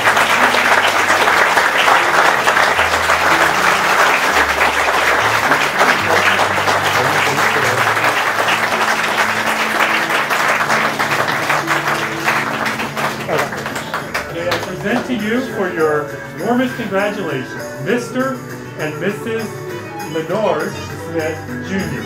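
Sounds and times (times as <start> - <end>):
crowd applauding: 0.0 - 16.7
low sustained music notes: 0.0 - 22.0.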